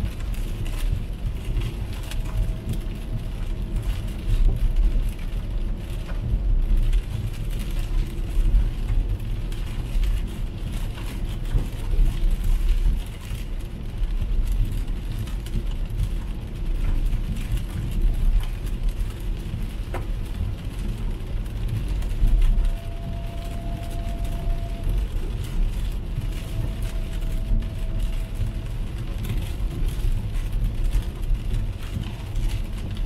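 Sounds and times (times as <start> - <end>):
rain on car: 0.0 - 33.0
road rumble and tyre noise: 0.0 - 33.0.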